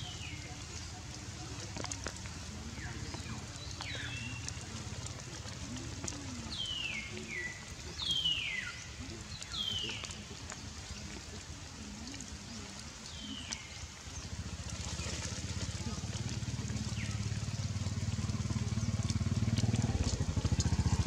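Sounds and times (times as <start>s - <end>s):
rain drops ticking: 0.0s - 21.0s
low background rumble: 13.1s - 21.0s.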